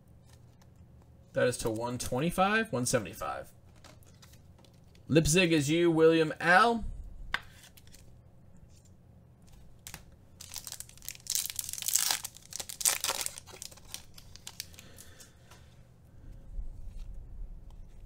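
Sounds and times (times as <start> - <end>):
cards being handled: 3.7 - 5.1, 7.3 - 15.3
wrapper tearing and crinkling: 9.8 - 15.0.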